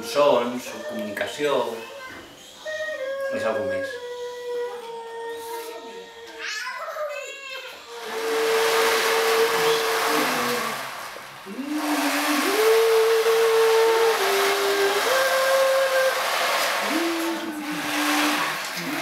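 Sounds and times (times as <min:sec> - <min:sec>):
slow sliding melody: 0:08.0 - 0:19.0
steady hiss: 0:08.0 - 0:19.0.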